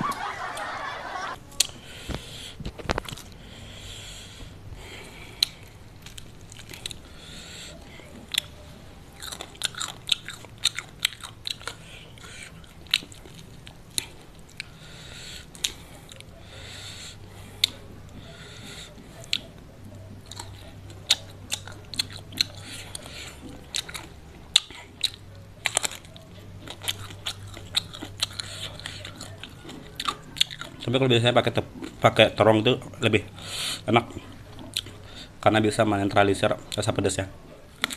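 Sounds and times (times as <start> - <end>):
faint low hum: 0.0 - 37.9
crunching and chewing crispy food: 1.5 - 37.9.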